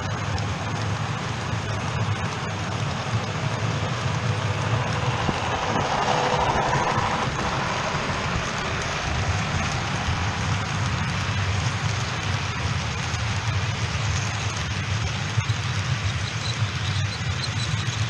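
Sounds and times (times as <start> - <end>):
hiss: 0.0 - 18.0
model train wheels rumbling on rail: 0.0 - 18.0
motor hum: 2.1 - 11.2.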